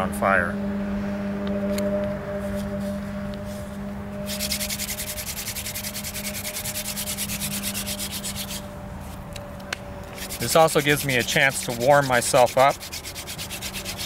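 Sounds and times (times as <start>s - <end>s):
steady low hum: 0.0s - 14.0s
wood rasping on wood: 4.3s - 8.6s, 10.2s - 14.0s.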